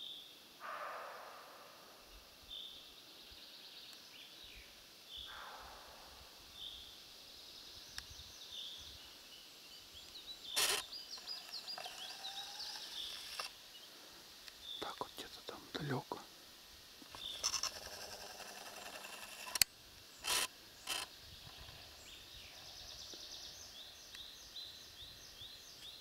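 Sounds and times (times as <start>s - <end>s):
small birds calling: 2.1s - 16.2s, 17.0s - 26.0s
sharp click: 18.8s - 21.1s.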